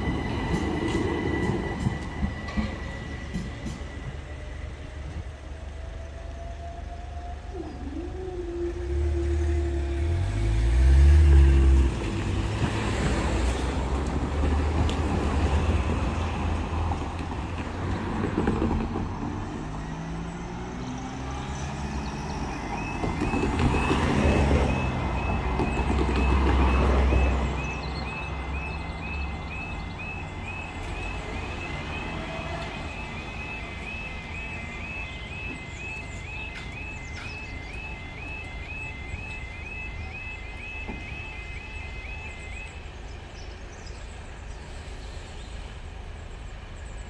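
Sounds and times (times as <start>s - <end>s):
road traffic pulling away: 0.0s - 47.0s
heavy vehicle engine accelerating: 7.9s - 40.8s
rapidly repeating warning tone: 22.3s - 42.8s.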